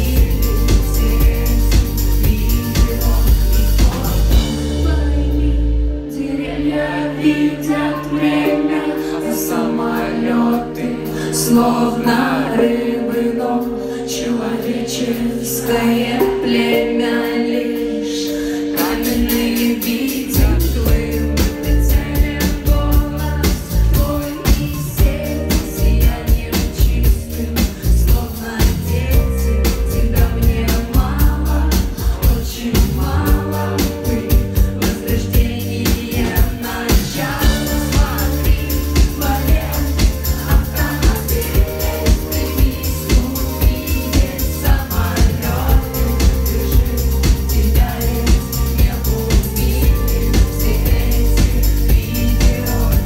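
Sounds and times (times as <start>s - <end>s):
heavy bass and drum beat: 0.0s - 5.9s, 18.8s - 53.0s
synth chords: 0.0s - 53.0s
woman singing: 0.0s - 53.0s.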